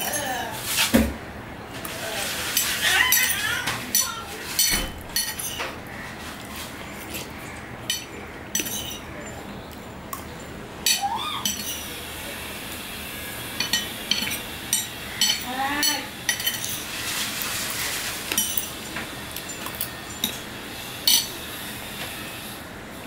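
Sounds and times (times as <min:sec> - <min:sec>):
spoon clinking on ceramic plate: 0:07.9 - 0:09.1, 0:10.9 - 0:11.9.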